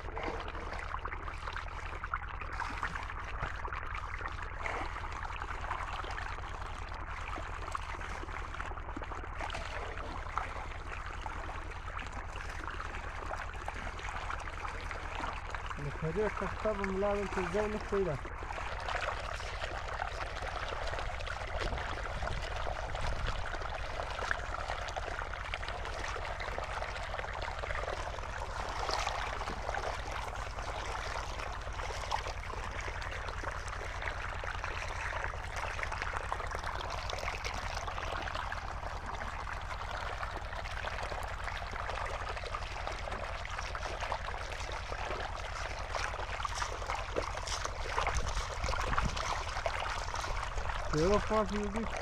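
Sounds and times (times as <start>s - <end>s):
shallow water running over gravel: 4.5s - 52.0s.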